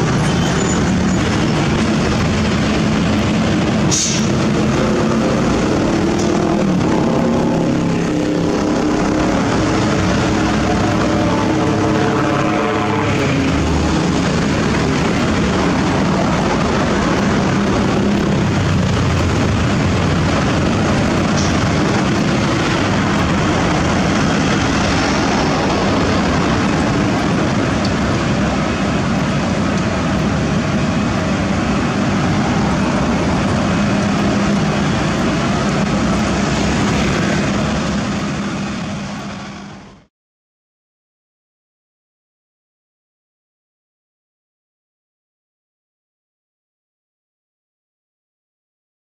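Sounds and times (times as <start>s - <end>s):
road milling machine diesel drone: 0.0s - 40.1s
hiss of asphalt cutting: 3.7s - 4.5s.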